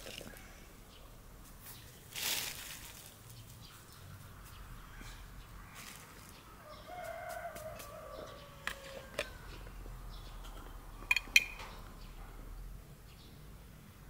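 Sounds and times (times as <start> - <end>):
rooster crowing: 6.5 - 9.8
sharp clicks of jar handled: 10.5 - 11.8.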